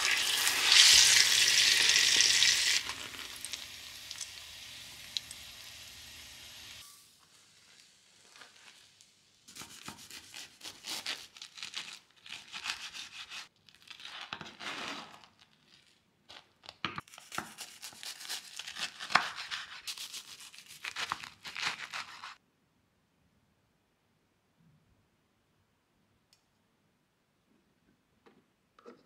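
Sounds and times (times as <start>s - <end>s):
serrated knife sawing crisp bread: 9.5s - 11.6s, 12.3s - 13.5s, 17.2s - 22.4s.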